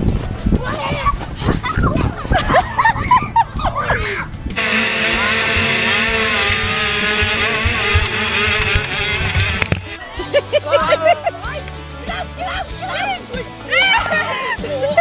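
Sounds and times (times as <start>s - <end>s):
motocross bike engines running hard: 4.6s - 10.1s
children shouting: 13.7s - 14.4s.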